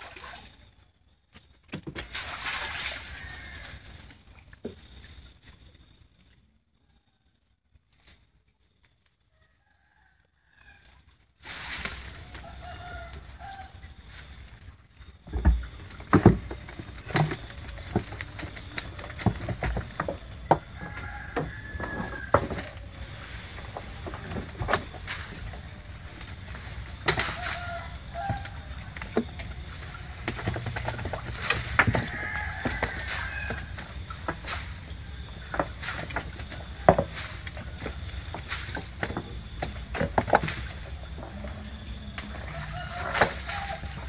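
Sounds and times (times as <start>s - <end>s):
water splashing: 0.0s - 0.6s, 1.9s - 5.1s, 11.5s - 44.0s
steady high hiss: 11.1s - 44.0s.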